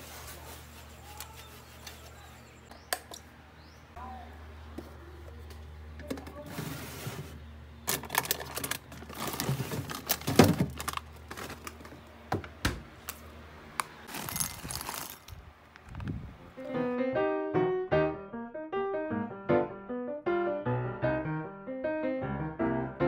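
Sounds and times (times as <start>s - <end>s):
refrigerator humming: 0.0s - 15.1s
plastic bag crinkling: 7.9s - 12.0s, 14.1s - 15.4s
crisps rattling onto ceramic plate: 14.1s - 15.3s.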